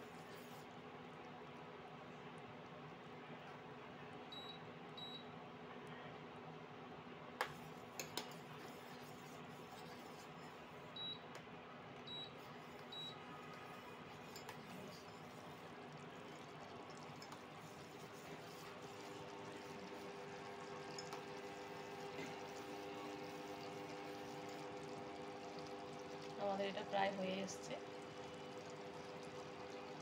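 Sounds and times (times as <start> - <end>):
steel spoon stirring: 7.6 - 10.8, 12.4 - 23.2
cooktop high beeps: 10.9 - 11.3, 12.0 - 13.2
sugar syrup bubbling: 12.1 - 30.0.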